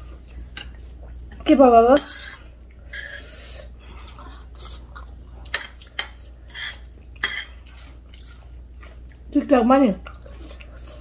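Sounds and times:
spoon scraping a dish: 0:01.9 - 0:03.5.

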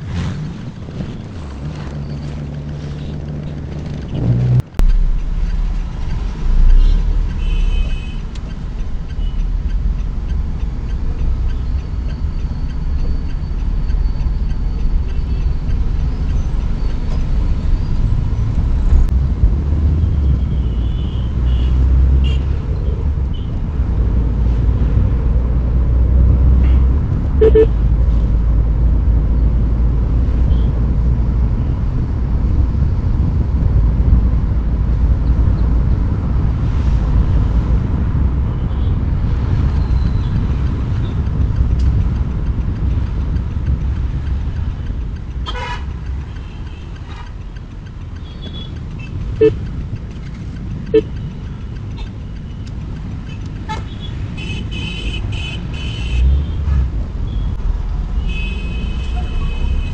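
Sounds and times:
car engine and road noise: 0:00.0 - 0:59.9
car horn beeps: 0:06.7 - 0:08.3, 0:20.3 - 0:22.5, 0:26.6 - 0:27.8, 0:45.4 - 0:46.9, 0:48.3 - 0:49.6, 0:50.9 - 0:51.1, 0:53.7 - 0:56.3, 0:58.2 - 0:59.9.

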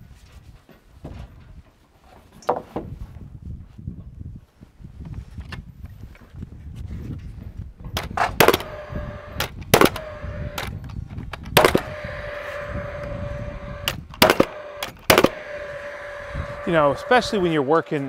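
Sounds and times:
nailer fan whirring: 0:07.8 - 0:18.0
nail gun shots: 0:08.0 - 0:12.4, 0:13.8 - 0:15.6.

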